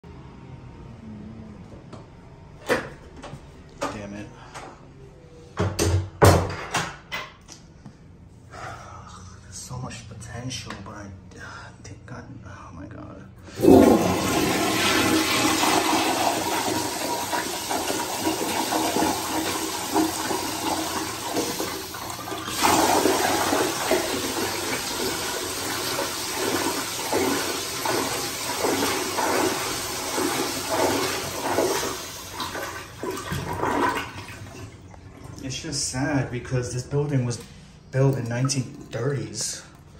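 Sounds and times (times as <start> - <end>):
toilet flushing: 13.5 - 36.2.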